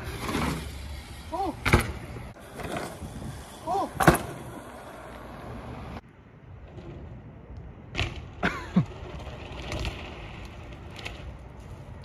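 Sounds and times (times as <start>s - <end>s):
bike tyres on concrete: 0.0s - 12.0s
bike knocks and clatters: 1.6s - 2.8s.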